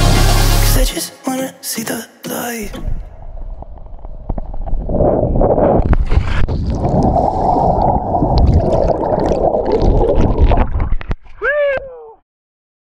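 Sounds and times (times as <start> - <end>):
water sloshing and gurgling: 3.0 - 11.4.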